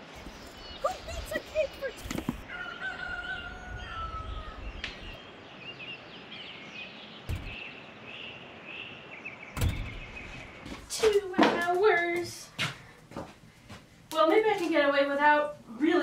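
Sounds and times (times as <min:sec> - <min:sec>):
light wind: 0:00.0 - 0:16.0
birds chirping and calling: 0:00.2 - 0:10.8
loud thump: 0:07.3 - 0:07.6, 0:09.6 - 0:10.4.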